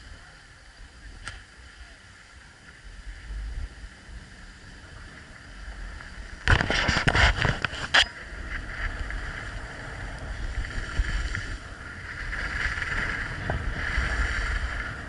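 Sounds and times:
wind rumble on microphone: 0.0 - 15.0
ski edges scraping hard snow: 6.4 - 8.0.

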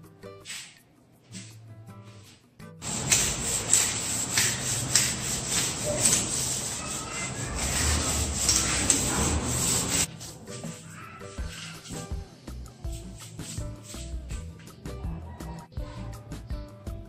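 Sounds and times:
rubbing on ceramic tile: 2.8 - 12.1.

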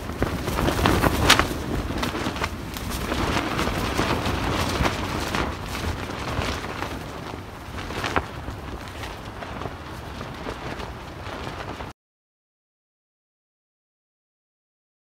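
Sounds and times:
low rumble of wind: 0.0 - 11.9
tent fabric flapping and snapping: 0.0 - 11.9.

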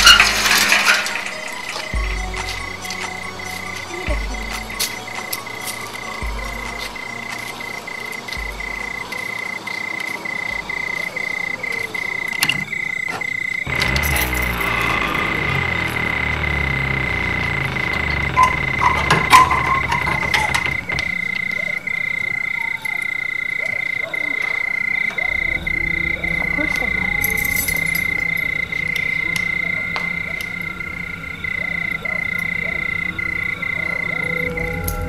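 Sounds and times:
low hum: 13.7 - 22.2, 25.1 - 35.0
high-pitched trilling tone: 25.1 - 35.0.

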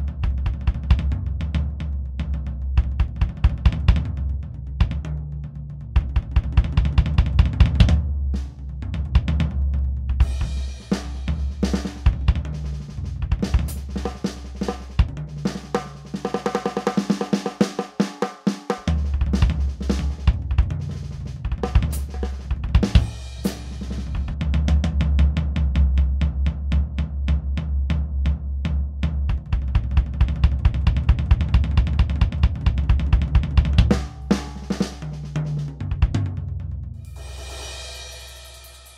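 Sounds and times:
low bass: 0.0 - 15.8, 18.9 - 38.1
electronic drum groove: 10.1 - 24.4, 29.3 - 36.2.

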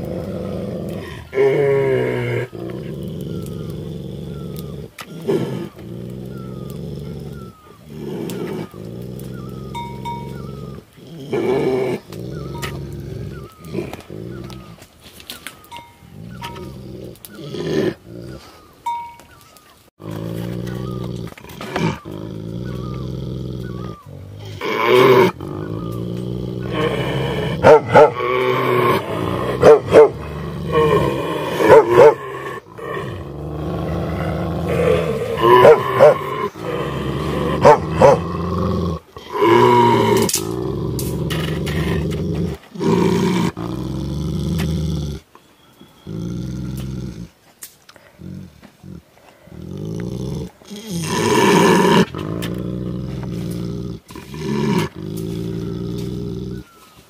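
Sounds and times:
dogs barking and snarling: 0.0 - 18.8, 20.0 - 45.3
dogs growling low: 0.0 - 18.8, 20.0 - 57.0.

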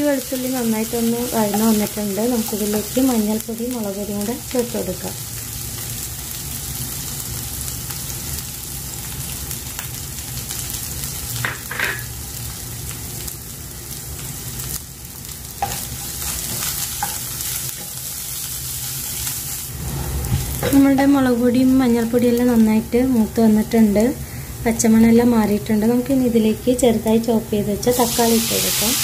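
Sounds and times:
food sizzling in hot oil: 0.0 - 29.0
steady low hum: 15.0 - 28.0.

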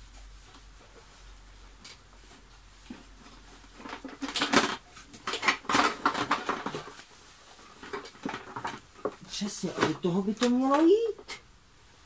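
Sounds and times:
plastic vacuum housing clattering: 3.7 - 7.0.

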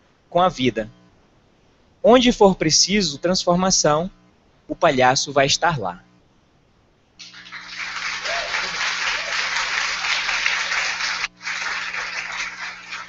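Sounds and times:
audience applauding: 7.2 - 13.0.

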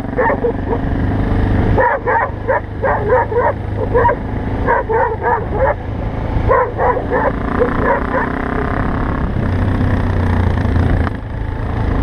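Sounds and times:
motorcycle engine running: 0.0 - 12.0
dog barking: 0.2 - 0.9, 1.8 - 5.8, 6.4 - 8.4.

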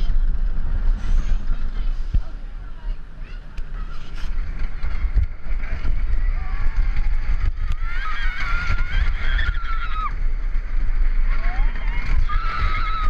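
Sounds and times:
deep continuous rumble: 0.0 - 13.0
wind buffeting microphone: 0.0 - 13.0
riders screaming: 6.6 - 13.0.

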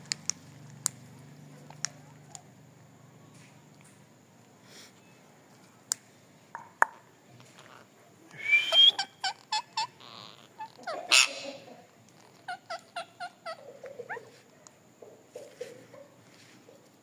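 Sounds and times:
parakeets screeching: 8.8 - 11.6, 12.2 - 14.2.

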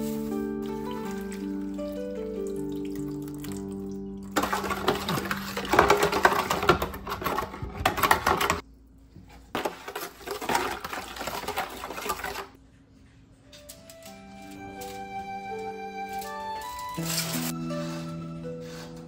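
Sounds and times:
spoon stirring in plastic bowl: 4.4 - 8.6.

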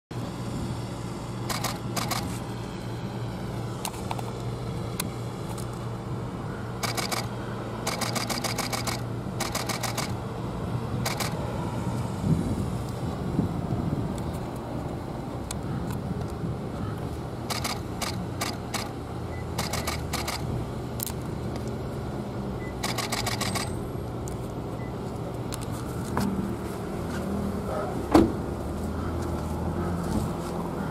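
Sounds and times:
steady low hum: 0.1 - 30.9
camera shutter clicks: 1.5 - 2.3, 6.8 - 7.3, 7.9 - 10.2, 11.0 - 11.4, 17.5 - 18.9, 19.5 - 21.2, 22.8 - 23.8.

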